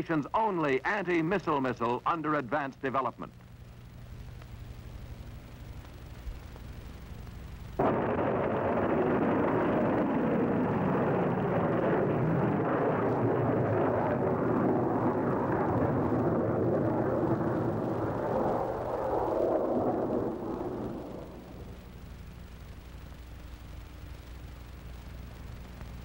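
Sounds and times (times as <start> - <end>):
rocket motor roar: 7.8 - 21.7.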